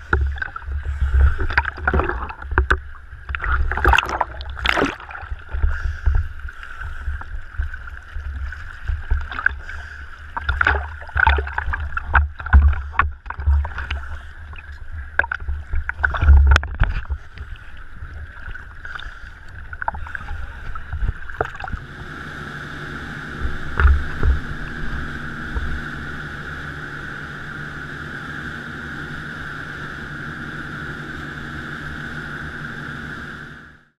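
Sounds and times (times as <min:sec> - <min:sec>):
hull thumping on waves: 0:00.0 - 0:26.6
rushing water: 0:00.0 - 0:26.6
sea water slapping and splashing: 0:00.0 - 0:27.0
boat engine hum: 0:00.0 - 0:34.0.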